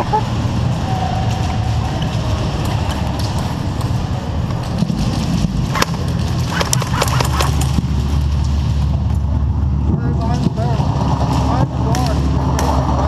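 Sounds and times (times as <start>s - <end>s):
low rumble of body-worn camera: 0.0s - 10.7s
airsoft gunfire snaps: 5.7s - 7.8s.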